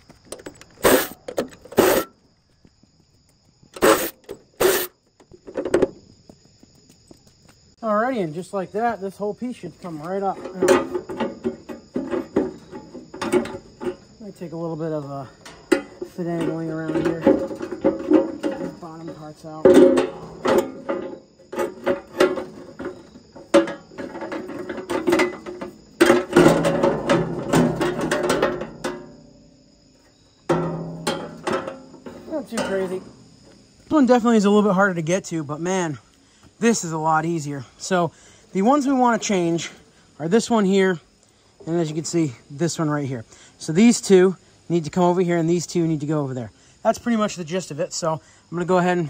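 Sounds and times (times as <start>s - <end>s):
clatter of parts: 0.0s - 2.1s.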